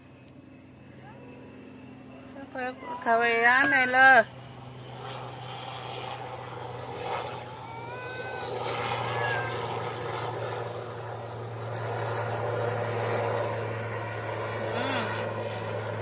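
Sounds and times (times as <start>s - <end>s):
low motor hum: 0.0s - 16.0s.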